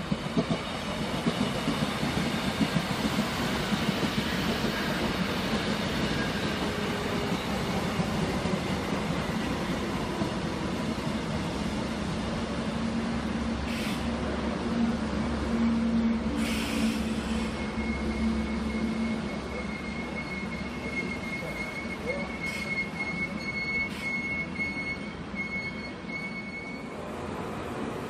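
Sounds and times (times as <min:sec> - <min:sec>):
electric train low hum: 0:00.0 - 0:28.0
high-pitched wheel squeal: 0:16.8 - 0:26.9.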